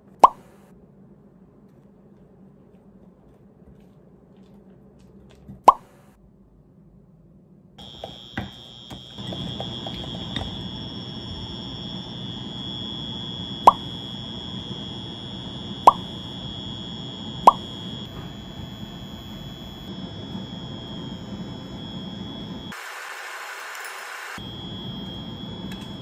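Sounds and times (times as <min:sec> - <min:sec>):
steady high whine: 0:07.8 - 0:26.0.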